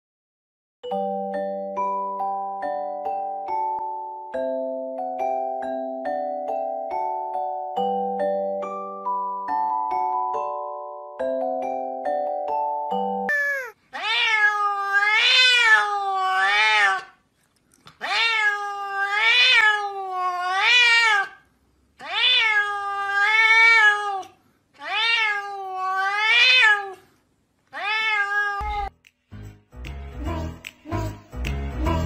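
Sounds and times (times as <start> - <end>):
cat meowing: 13.3 - 17.2, 18.0 - 21.4, 22.0 - 27.0, 27.7 - 28.9.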